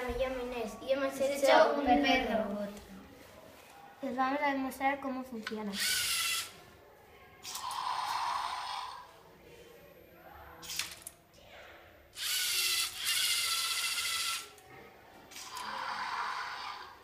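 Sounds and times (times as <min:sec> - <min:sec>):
small electric motors whirring: 0:05.8 - 0:06.5, 0:12.2 - 0:14.5.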